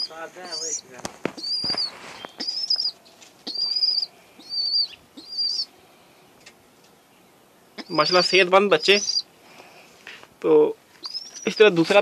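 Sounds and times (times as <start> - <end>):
pigeon squabs peeping: 0.0 - 5.7, 7.8 - 9.3, 11.0 - 12.0.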